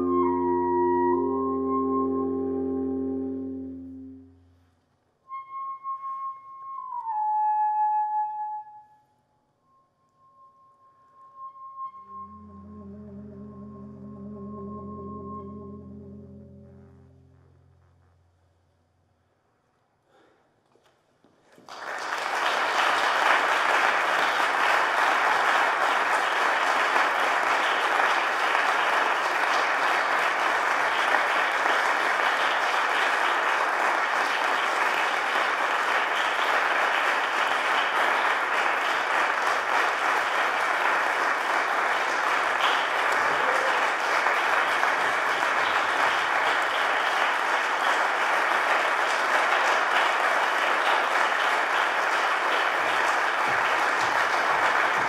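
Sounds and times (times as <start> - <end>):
audience applauding: 21.4 - 55.0.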